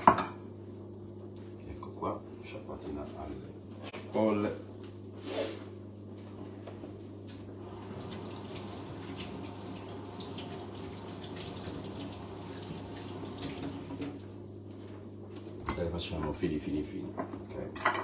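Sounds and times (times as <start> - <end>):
tap running into sink: 7.9 - 14.2.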